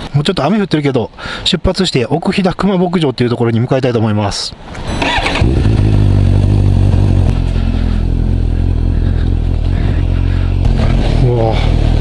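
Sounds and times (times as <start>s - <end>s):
road and wind noise: 0.0s - 12.0s
motorcycle engine running: 5.0s - 12.0s.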